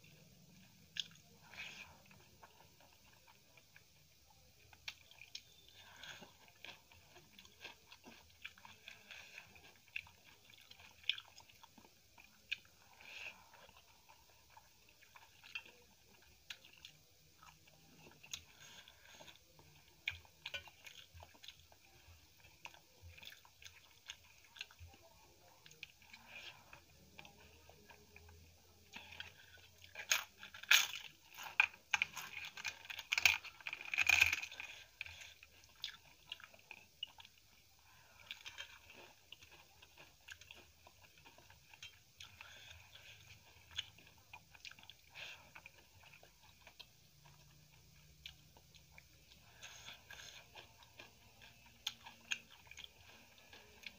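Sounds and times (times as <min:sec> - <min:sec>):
crunching crisp food: 0:00.0 - 0:53.9
quiet chewing: 0:00.0 - 0:53.9.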